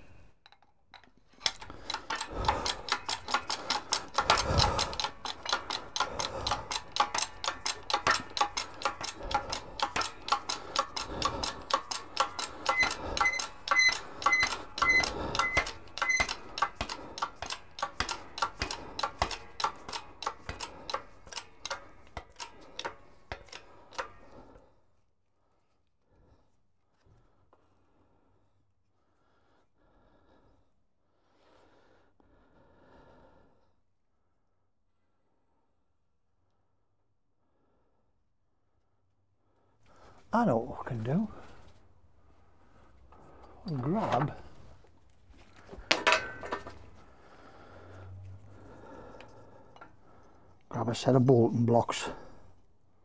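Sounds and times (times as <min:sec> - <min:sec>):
bottle jack pumping clicks: 0:00.5 - 0:24.2.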